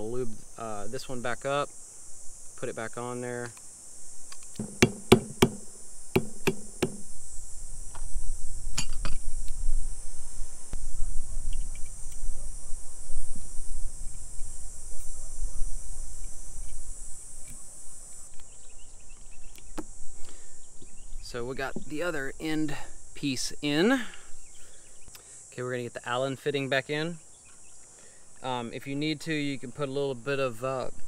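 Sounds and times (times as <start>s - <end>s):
high insect drone: 0.0s - 31.0s
sharp metal knocks: 4.5s - 7.1s.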